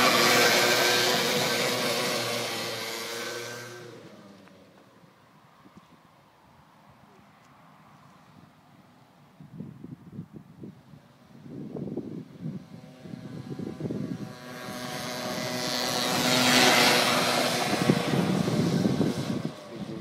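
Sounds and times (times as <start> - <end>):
small car engine revving by: 0.0 - 5.1, 11.1 - 20.0.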